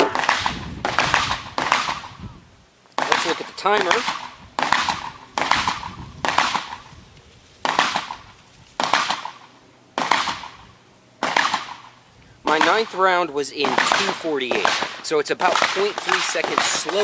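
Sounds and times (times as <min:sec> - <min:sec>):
gunshots with echo: 0:00.0 - 0:02.2, 0:03.0 - 0:06.9, 0:07.6 - 0:08.2, 0:10.0 - 0:10.6, 0:11.2 - 0:13.0, 0:13.6 - 0:17.0.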